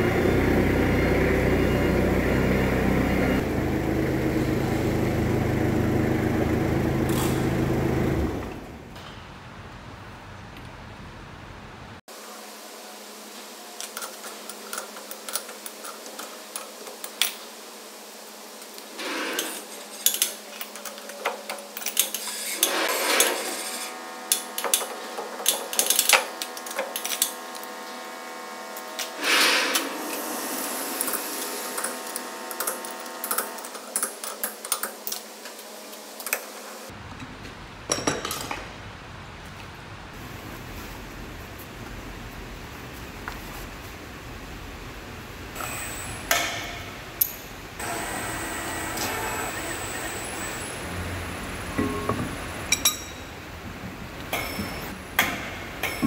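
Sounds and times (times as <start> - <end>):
steady hum: 40.1 - 56.0
steel clanking and clinking: 51.8 - 53.4, 54.3 - 56.0.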